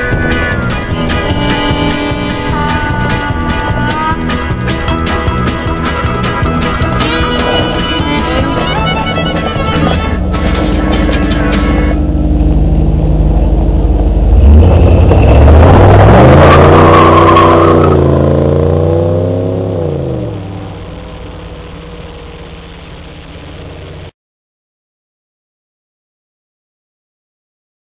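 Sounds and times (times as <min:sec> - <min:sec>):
car engine revving: 0:00.0 - 0:24.1
tyre squeal: 0:16.3 - 0:18.1.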